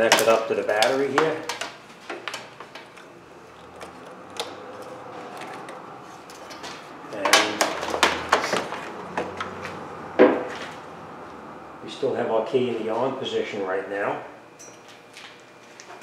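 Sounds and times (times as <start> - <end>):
tester leads clicking and knocking: 0.0 - 9.8.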